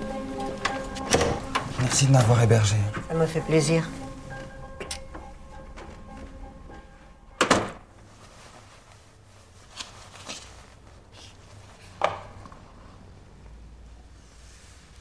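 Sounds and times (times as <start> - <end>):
faint handling noises: 7.8 - 13.0.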